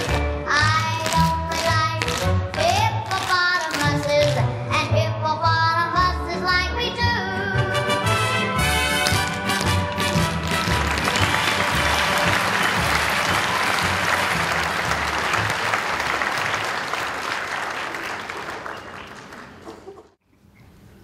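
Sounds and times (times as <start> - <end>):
audience applauding: 9.2 - 20.0.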